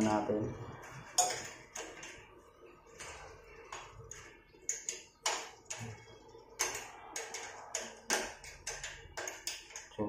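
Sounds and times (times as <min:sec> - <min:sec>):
small metal parts clicking: 0:06.6 - 0:10.0.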